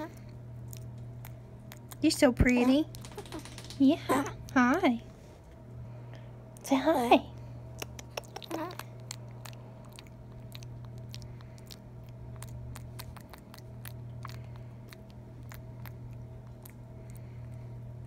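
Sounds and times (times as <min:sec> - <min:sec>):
wet clicks and lip smacks: 0:00.7 - 0:04.6, 0:07.7 - 0:17.6
monkey licking fingers: 0:07.8 - 0:17.2.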